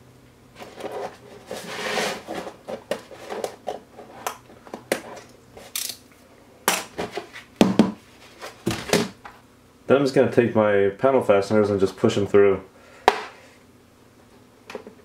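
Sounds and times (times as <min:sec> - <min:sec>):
plastic basket knocks: 0:07.6 - 0:08.0.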